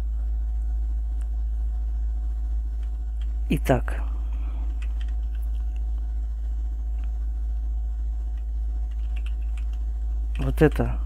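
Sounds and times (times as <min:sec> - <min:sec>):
low electrical hum: 0:00.0 - 0:11.0
computer keys clicking: 0:04.6 - 0:05.9, 0:08.3 - 0:11.0.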